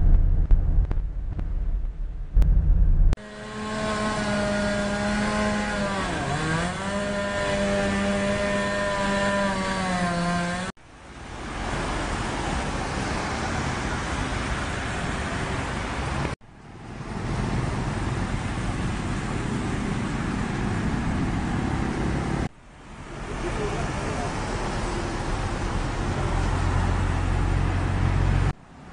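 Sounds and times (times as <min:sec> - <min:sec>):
engine drone: 0:00.0 - 0:12.3
traffic on wet road: 0:03.2 - 0:28.9.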